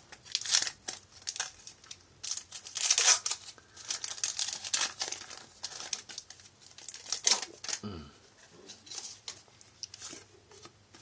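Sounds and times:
wrapper tearing and crinkling: 0.1s - 7.8s.

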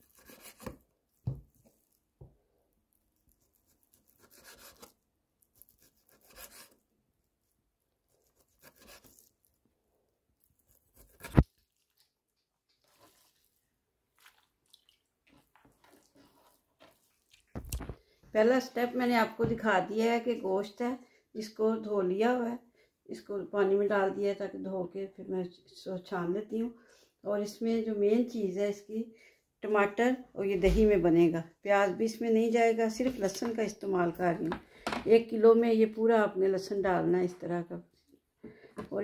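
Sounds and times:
knife slicing through meat: 0.0s - 0.8s, 10.6s - 11.5s.

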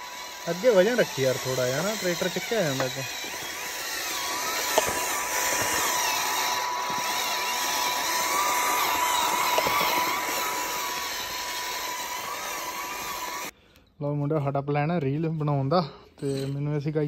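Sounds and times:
toy electric motor whining: 0.0s - 13.5s.

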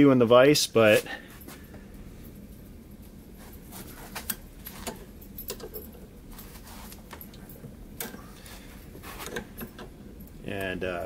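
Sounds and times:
pliers clicking on wire: 4.2s - 5.9s.

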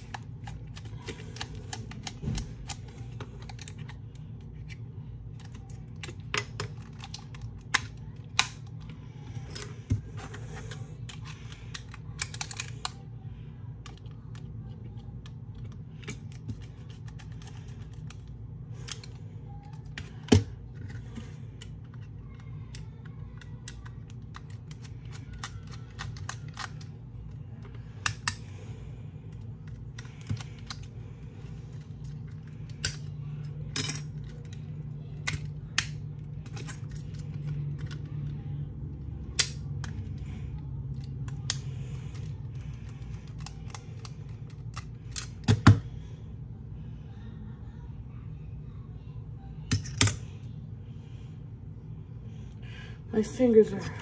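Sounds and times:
low steady hum: 0.0s - 54.0s
plastic toys clicking: 11.0s - 13.0s, 21.6s - 27.0s.

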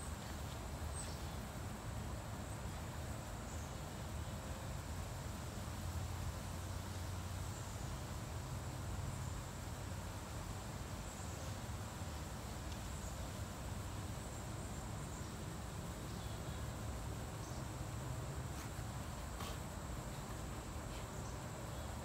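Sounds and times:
insects droning: 0.0s - 22.0s
faint ticks: 12.6s - 12.9s.

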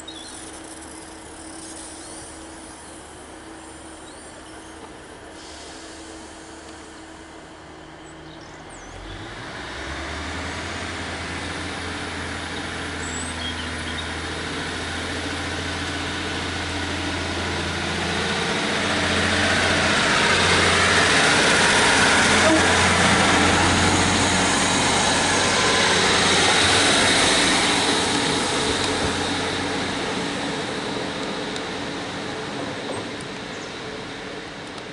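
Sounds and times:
diesel train engine droning: 0.0s - 34.9s
wheel-on-rail noise: 10.6s - 34.9s.

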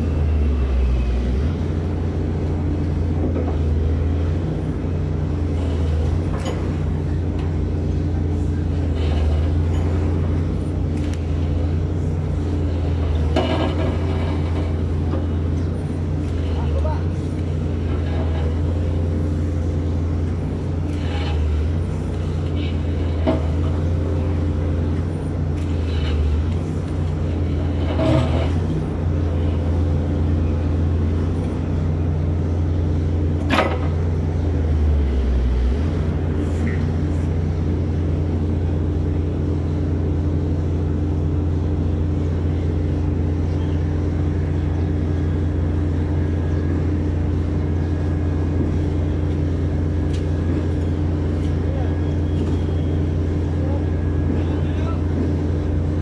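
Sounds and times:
low engine drone: 0.0s - 56.0s.

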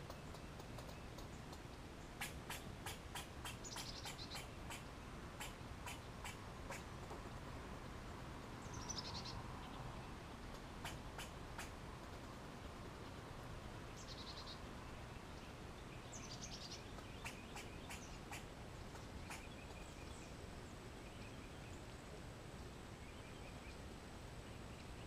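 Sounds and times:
sharp clicks and faint chips: 0.0s - 3.0s
steady outdoor hiss: 0.0s - 25.0s.

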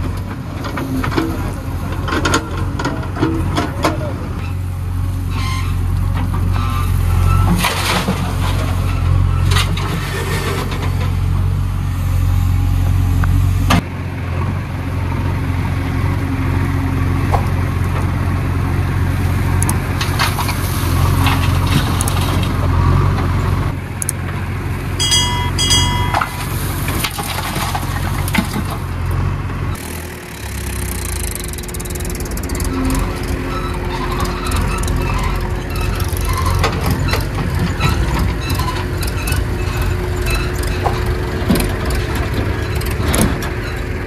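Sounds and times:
diesel engine running under load: 0.0s - 44.0s
high squeals: 25.0s - 26.5s.

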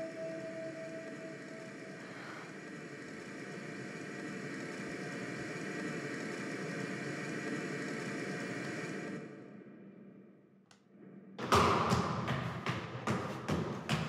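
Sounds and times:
steady noisy drone: 0.0s - 10.2s.

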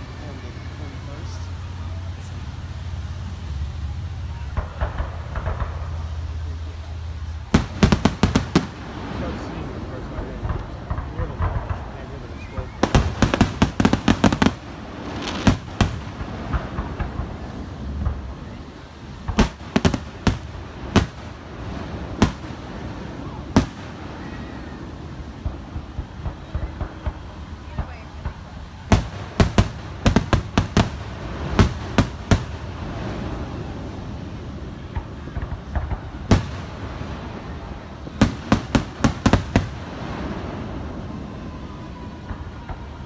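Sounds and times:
firework shells bursting: 7.4s - 9.4s, 10.0s - 18.3s, 19.2s - 24.4s, 25.3s - 33.2s, 34.8s - 40.5s.

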